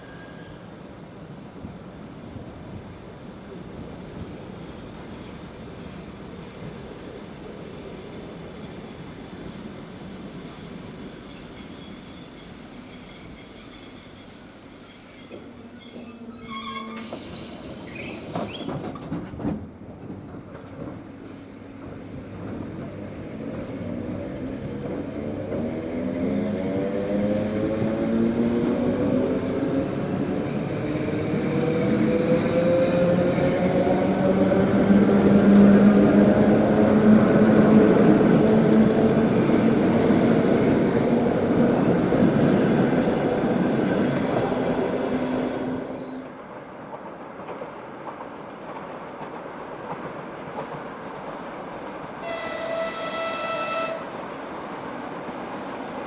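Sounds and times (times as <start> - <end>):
high-pitched train squeal: 0.0 - 18.8.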